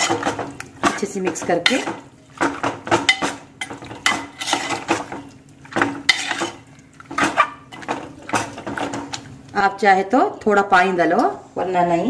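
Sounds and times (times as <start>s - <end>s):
spoon scraping a metal pot: 0.0s - 2.0s, 3.0s - 5.2s, 5.8s - 9.2s.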